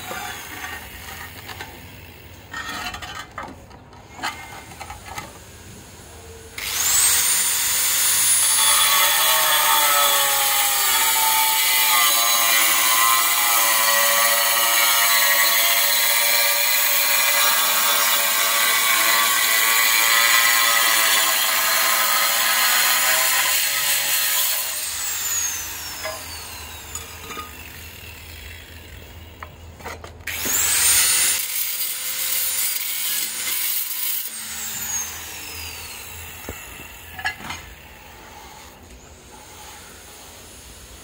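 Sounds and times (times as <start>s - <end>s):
angle grinder cutting tile: 6.6s - 29.3s, 29.9s - 38.8s.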